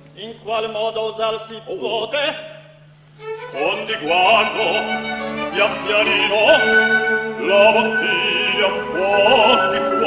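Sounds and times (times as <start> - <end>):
orchestral accompaniment: 3.2 - 10.0
man singing opera: 3.5 - 10.0.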